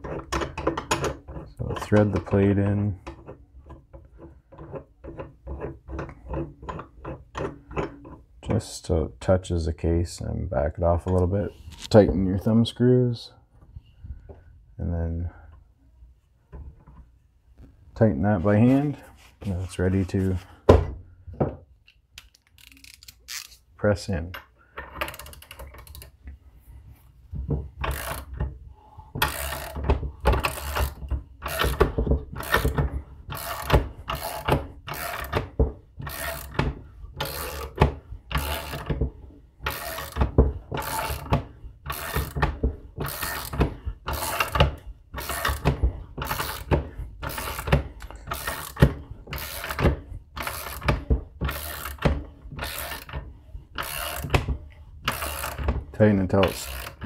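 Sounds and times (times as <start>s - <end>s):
socket ratchet clicking: 53.8s - 54.4s.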